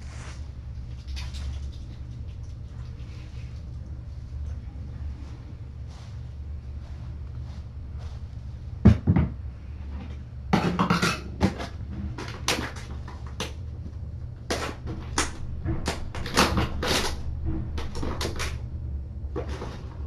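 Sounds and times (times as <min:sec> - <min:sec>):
rustling scrapes and clatters: 0:00.0 - 0:03.8, 0:19.3 - 0:20.0
steady low hum: 0:00.0 - 0:20.0.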